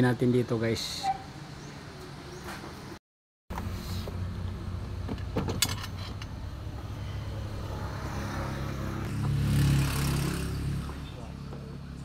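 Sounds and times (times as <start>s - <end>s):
vehicle engine humming: 3.5s - 12.0s.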